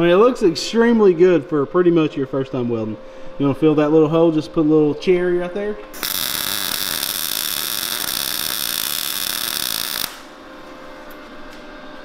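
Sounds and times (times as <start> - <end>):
welding arc hissing: 6.0 - 10.4.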